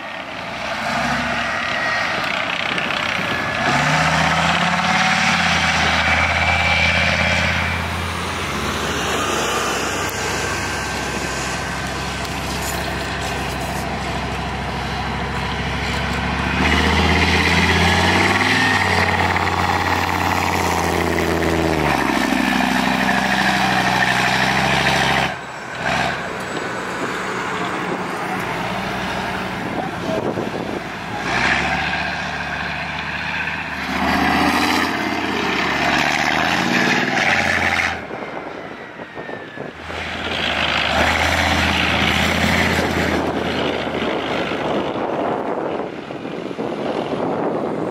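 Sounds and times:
tracked vehicles diesel engines: 0.0s - 47.9s.

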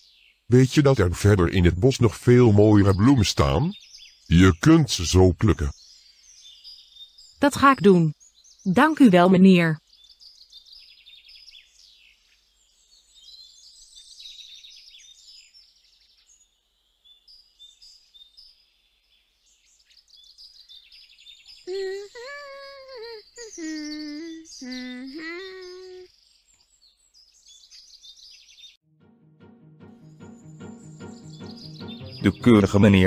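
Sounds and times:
small birds chirping: 0.0s - 28.8s, 30.0s - 33.0s
girl humming: 21.7s - 26.1s.

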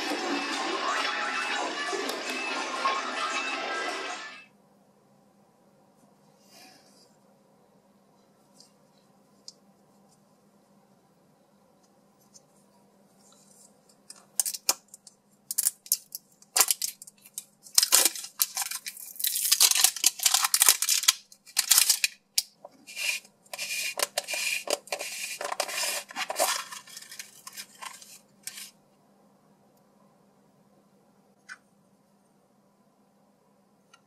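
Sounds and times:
plastic film crinkling and tearing: 15.6s - 22.2s.

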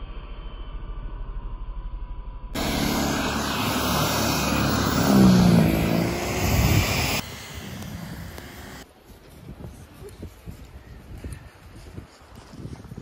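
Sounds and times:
snow churning: 2.6s - 8.8s
snow thrower motor whirring: 2.6s - 8.8s.

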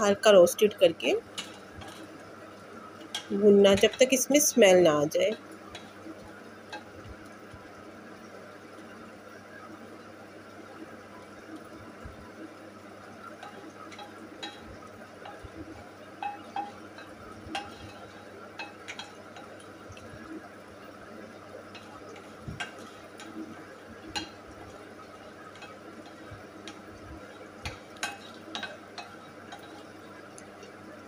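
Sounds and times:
spatula clicking against pan: 16.2s - 19.6s, 25.5s - 26.9s, 27.6s - 30.5s.

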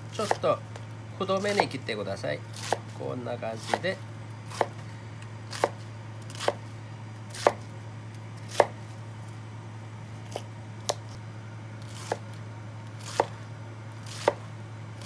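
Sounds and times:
steady low hum: 0.0s - 15.0s
knife cutting cabbage: 0.1s - 0.6s, 1.3s - 1.8s, 2.5s - 4.8s, 5.5s - 6.7s, 7.3s - 7.7s, 8.4s - 8.8s, 11.8s - 13.4s, 14.0s - 14.5s.

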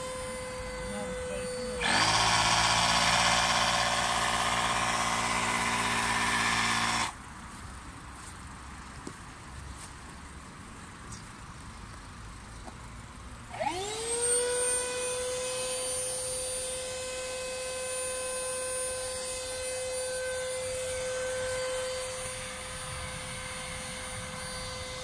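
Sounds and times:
electric air pump whining: 0.0s - 7.2s, 13.5s - 25.0s.

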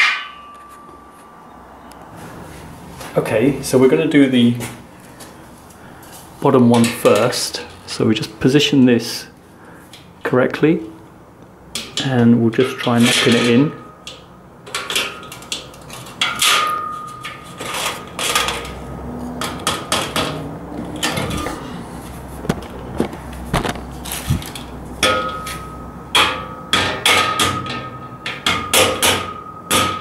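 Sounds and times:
short metallic ring: 0.0s - 1.6s.

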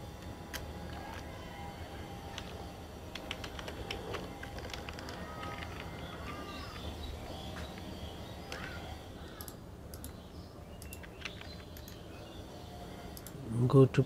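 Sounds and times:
low background hum: 0.0s - 14.0s
keyboard and mouse clicks: 3.2s - 6.9s, 9.4s - 10.2s, 10.8s - 12.0s.

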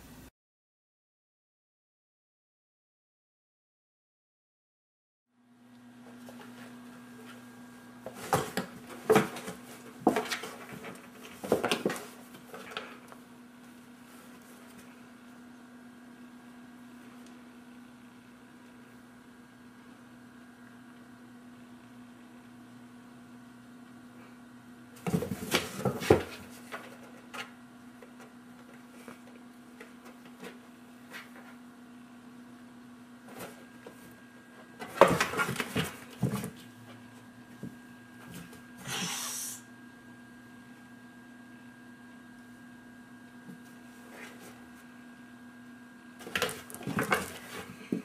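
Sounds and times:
low steady hum: 0.0s - 0.3s, 5.3s - 48.0s
cats scuffling in cardboard box: 6.1s - 13.0s, 25.0s - 27.6s, 33.2s - 39.1s, 43.5s - 44.9s, 46.2s - 48.0s.

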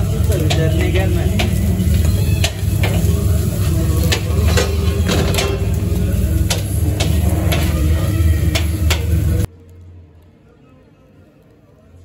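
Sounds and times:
metal spatulas scraping on griddle: 0.0s - 9.5s.

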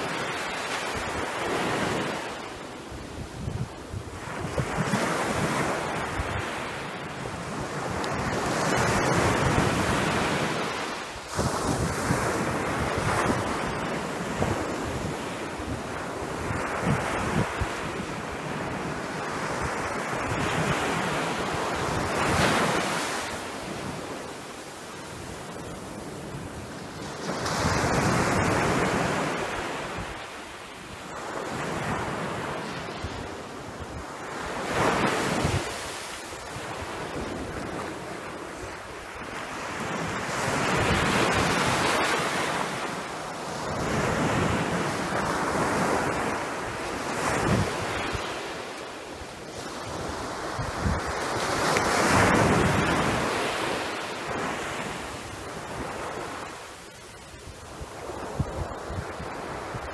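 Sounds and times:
sea waves washing in: 0.0s - 59.9s
wind buffeting microphone: 3.0s - 24.2s, 43.5s - 48.5s, 49.5s - 56.5s.

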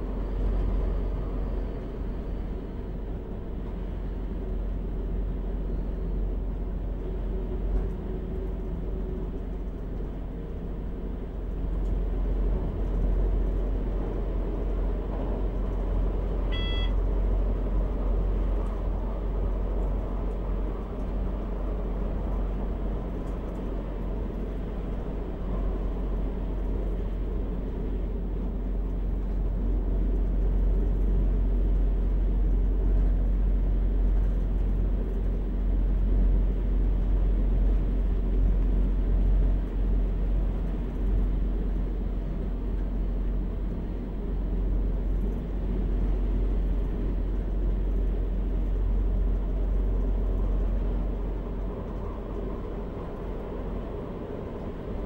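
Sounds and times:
diesel train engine drone: 0.0s - 55.0s
brief high tone: 16.5s - 17.0s.

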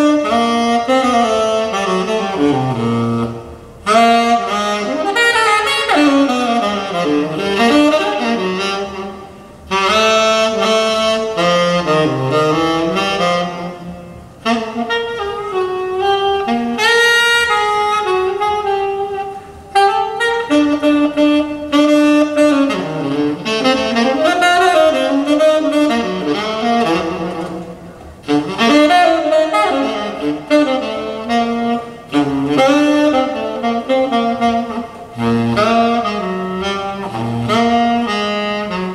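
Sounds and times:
jazz saxophone over loudspeakers: 0.0s - 38.9s.

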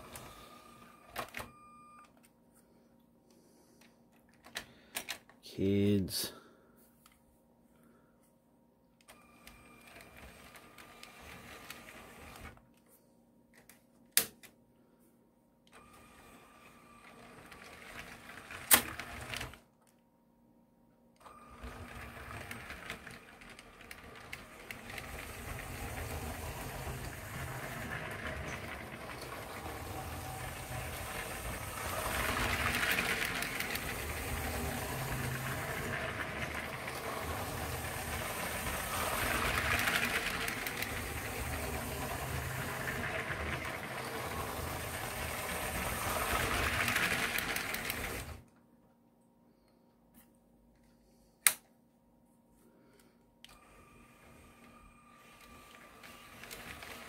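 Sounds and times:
toy train motor whirring: 0.0s - 0.6s, 9.9s - 12.6s, 17.1s - 19.6s, 21.5s - 48.4s, 54.2s - 57.0s.

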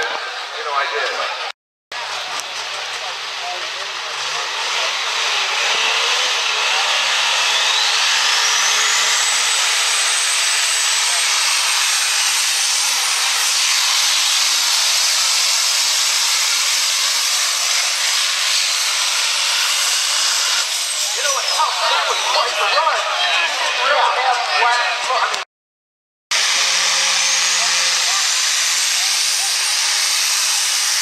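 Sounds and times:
diesel truck engine at full throttle: 2.0s - 13.3s
turbocharger whistle: 5.7s - 9.6s.

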